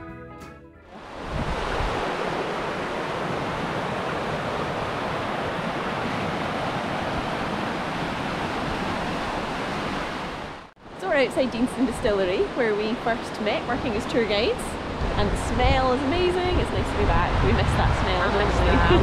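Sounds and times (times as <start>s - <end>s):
river rushing over rapids: 0.9s - 11.9s.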